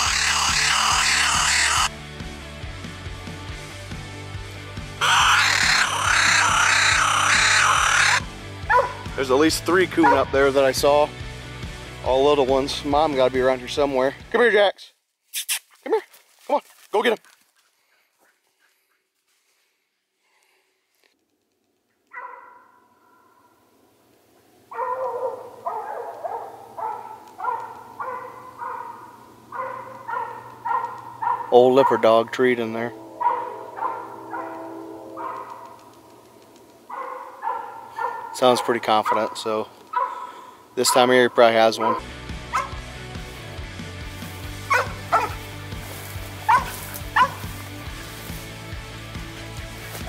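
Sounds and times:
dog barking: 8.7 - 9.1, 10.0 - 10.3, 22.1 - 22.8, 24.7 - 32.2, 33.2 - 35.8, 36.9 - 41.2, 41.8 - 42.8, 44.7 - 45.4, 46.5 - 47.5.

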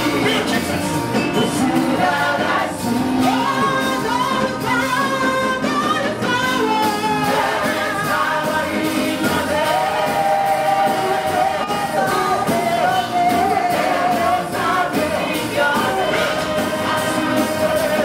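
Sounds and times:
group singing gospel song: 0.0 - 18.0
instrumental accompaniment: 0.0 - 18.0
repeating bass line: 0.0 - 18.0.

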